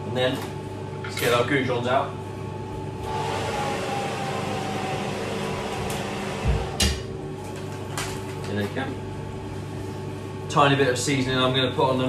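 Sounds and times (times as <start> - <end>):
oven fan whooshing: 2.4 - 12.0.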